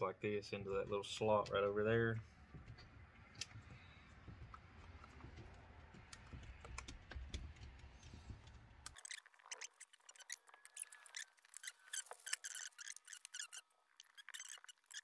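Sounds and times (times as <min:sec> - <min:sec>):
small clicks and taps of parts: 0:02.6 - 0:09.0.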